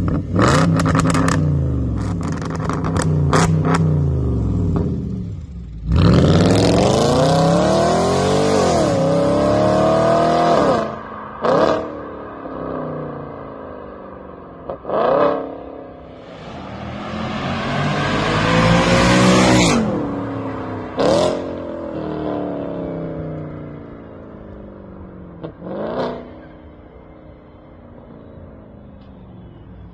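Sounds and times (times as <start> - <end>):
car engine accelerating hard: 14.9 - 22.9.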